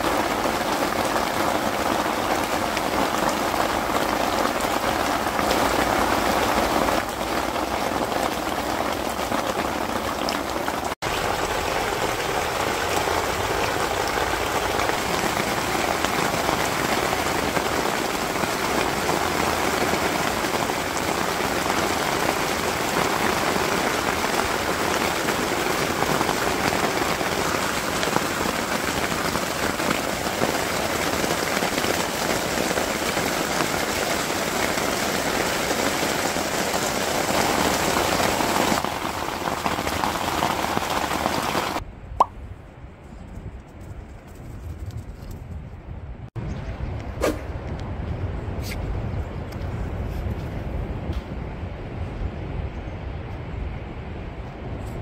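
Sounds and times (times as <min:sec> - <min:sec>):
heavy rain falling: 0:00.0 - 0:41.8.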